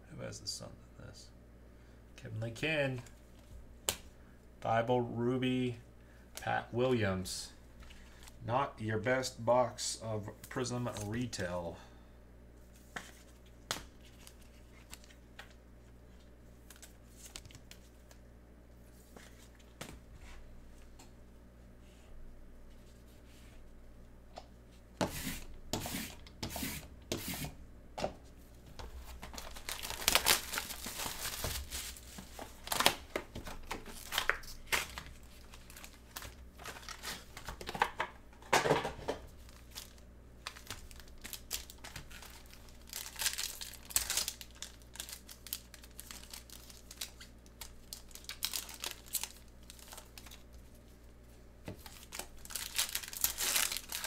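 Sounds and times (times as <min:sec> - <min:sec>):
foil packs tearing and crinkling: 0:29.1 - 0:37.7, 0:39.4 - 0:50.5, 0:51.8 - 0:54.0.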